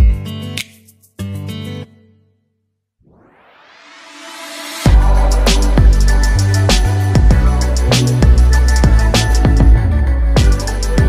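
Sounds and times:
electronic music with bass and drums: 0.0 - 1.0, 4.4 - 11.0.

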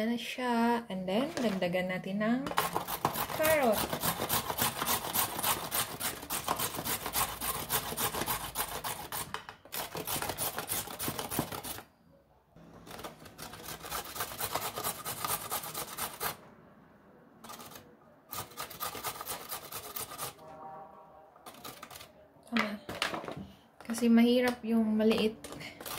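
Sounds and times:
carrot rasping on metal grater: 2.5 - 11.8, 13.4 - 16.4, 17.4 - 20.4.

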